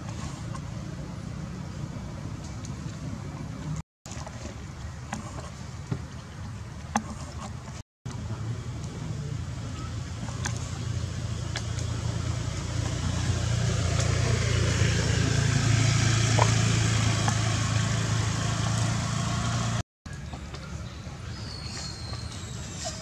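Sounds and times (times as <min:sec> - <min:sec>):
vehicle engine hum: 0:00.0 - 0:20.7.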